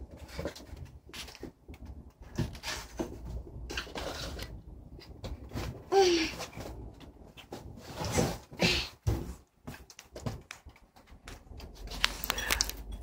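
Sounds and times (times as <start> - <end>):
cats chewing and licking food: 0.0 - 5.8, 9.4 - 13.0.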